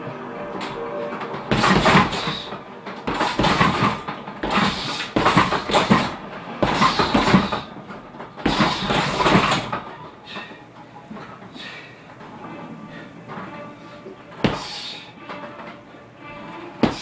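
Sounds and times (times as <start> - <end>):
punches thudding on heavy bag: 1.5 - 2.4, 3.0 - 7.7, 8.4 - 9.8, 14.4 - 14.7.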